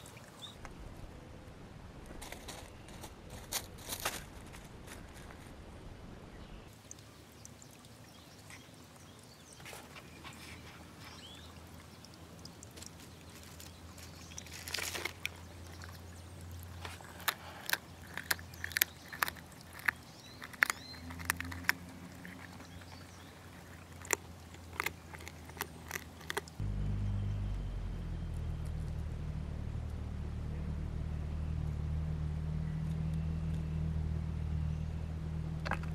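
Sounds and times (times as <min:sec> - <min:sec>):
low steady hum: 0:00.0 - 0:35.9
clicks and crackles of seed shells: 0:12.6 - 0:26.6.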